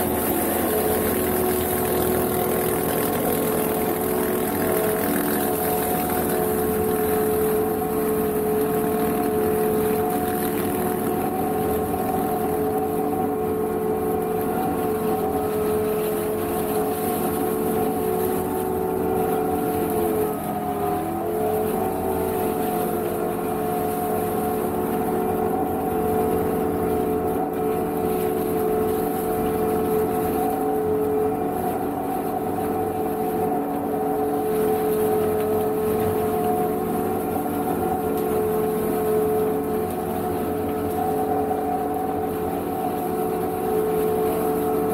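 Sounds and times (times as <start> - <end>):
flail head mulching brush: 0.0 - 12.4
mower engine humming: 0.0 - 44.9.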